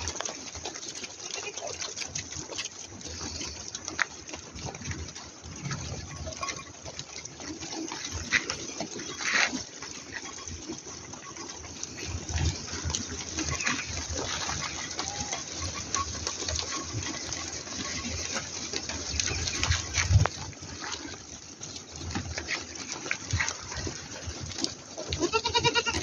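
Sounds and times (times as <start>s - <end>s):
hooves pattering on dirt road: 0.0s - 26.0s
faint bleat: 25.1s - 26.0s.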